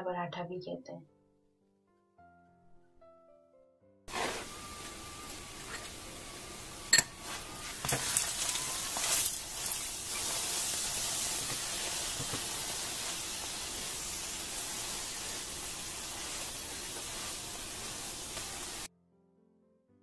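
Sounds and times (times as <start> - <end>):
oil sizzling in pan: 4.1 - 18.9.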